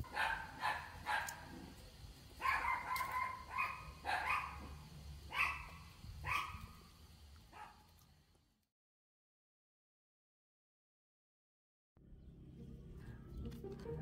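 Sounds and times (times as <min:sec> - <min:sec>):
animal yelping: 0:02.4 - 0:04.6.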